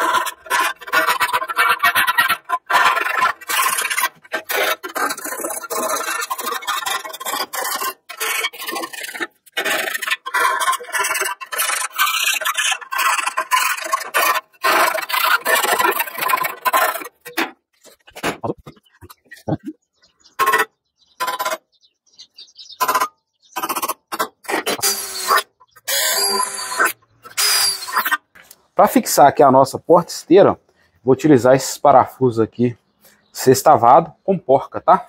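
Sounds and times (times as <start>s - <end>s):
hand file rasping on sheet metal: 0.0s - 18.0s, 22.8s - 28.2s.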